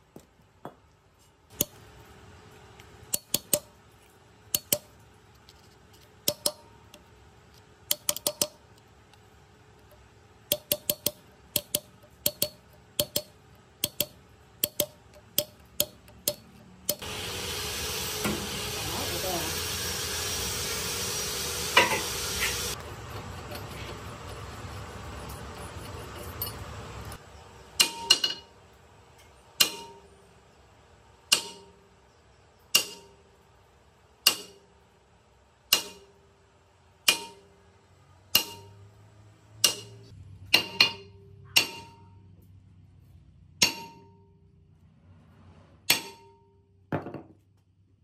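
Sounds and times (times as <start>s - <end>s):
hammer clanging on metal pulley: 29.6s - 30.1s, 31.3s - 31.8s, 32.7s - 33.2s, 35.7s - 36.2s, 37.0s - 37.5s, 38.3s - 38.9s, 39.6s - 42.2s, 43.6s - 44.3s.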